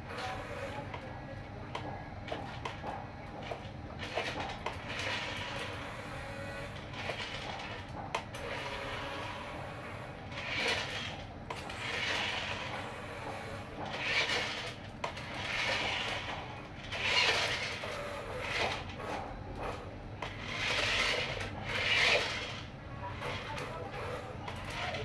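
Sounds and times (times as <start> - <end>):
toy motor and gears whirring: 3.4 - 25.0
plastic wheels scraping: 10.3 - 25.0.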